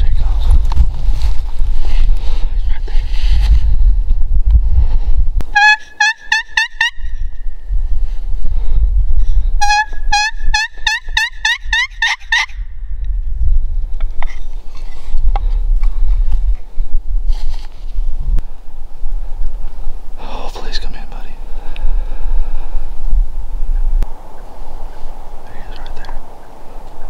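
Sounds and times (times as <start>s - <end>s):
wind rumble on microphone: 0.0s - 5.6s, 6.9s - 27.0s
turkey call yelps: 9.6s - 12.6s.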